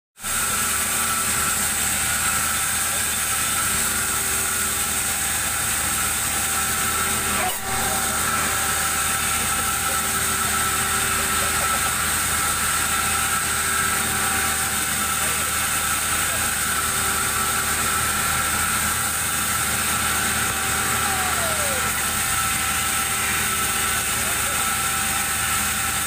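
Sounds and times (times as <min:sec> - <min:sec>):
band saw blade whining: 0:00.2 - 0:26.0.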